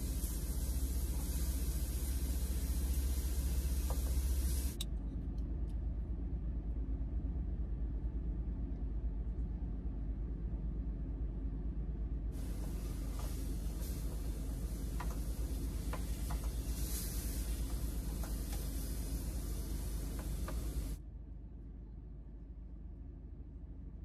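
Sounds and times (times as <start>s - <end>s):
gas stove burner hissing: 0.0s - 4.8s, 12.4s - 21.0s
vegetables sizzling in a frying pan: 0.0s - 4.8s, 12.4s - 21.0s
low steady hum: 0.0s - 24.0s.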